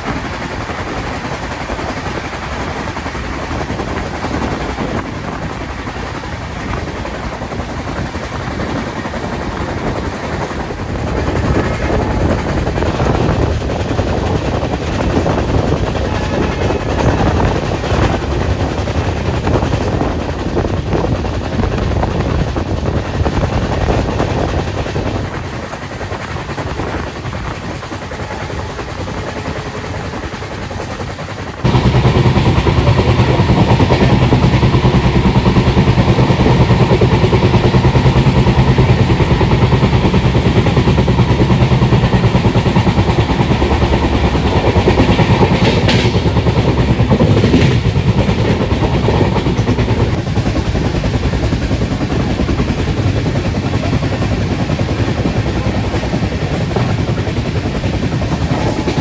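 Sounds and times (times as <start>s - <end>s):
short train clatters: 0.0s - 50.6s
rail running noise: 0.0s - 59.0s
diesel engines droning: 31.7s - 48.1s.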